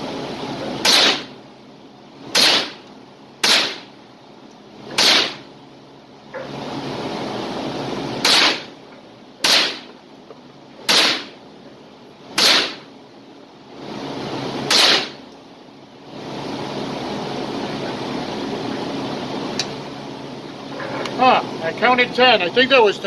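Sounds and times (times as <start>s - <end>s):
rifle shots: 0.8s - 1.3s, 2.4s - 2.8s, 3.4s - 3.9s, 5.0s - 5.4s, 8.2s - 8.7s, 9.4s - 9.9s, 10.9s - 11.3s, 12.4s - 12.9s, 14.7s - 15.2s.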